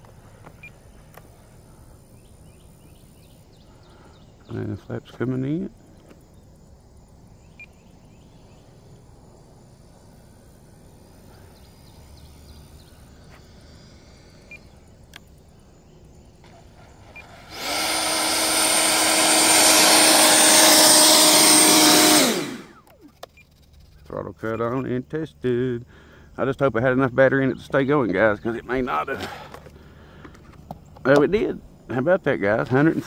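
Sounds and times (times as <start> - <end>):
faint outdoor background: 0.0 - 33.0
model jet fan rushing and whining: 16.3 - 23.8.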